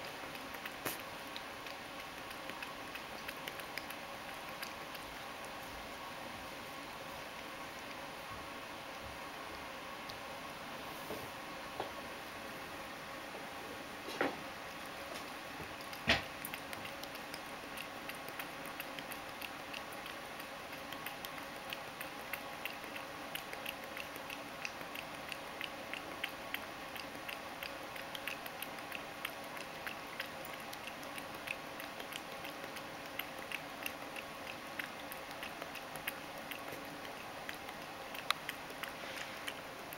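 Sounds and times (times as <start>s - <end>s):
cat lapping milk: 0.0s - 11.7s, 12.6s - 39.9s.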